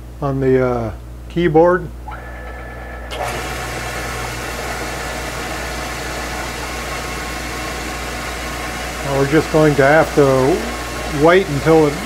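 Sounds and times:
vacuum cleaner rushing: 2.1 - 12.0
wood lathe spinning: 2.1 - 12.0.

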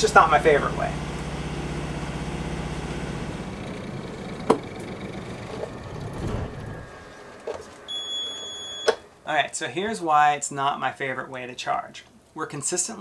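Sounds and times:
marine diesel engine running: 0.0 - 9.2.

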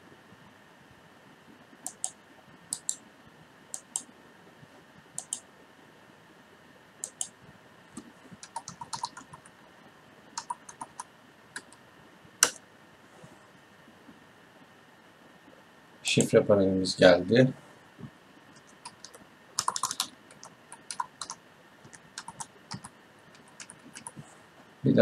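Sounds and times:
computer mouse clicks: 1.8 - 3.0, 3.7 - 4.1, 5.2 - 5.4, 7.0 - 7.4, 8.0 - 9.5, 10.4 - 11.8, 18.6 - 24.2
keyboard typing: 1.8 - 3.0, 3.8 - 4.1, 5.2 - 5.4, 7.0 - 7.3, 8.0 - 9.5, 10.4 - 11.8, 18.5 - 24.2.

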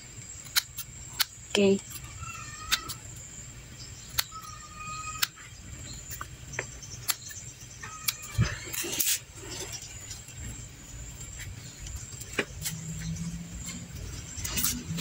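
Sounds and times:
bird calling: 3.8 - 10.2
scissors snipping: 4.1 - 4.5.

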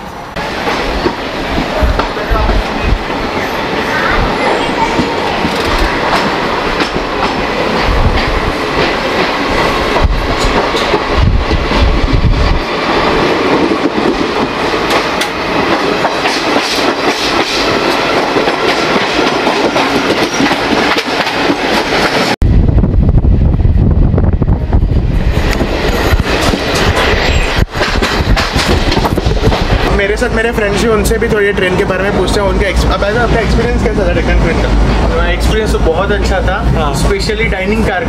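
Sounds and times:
train wheels running on rails: 0.0 - 22.4, 23.4 - 38.0
deep heavy rumble: 22.4 - 30.1.

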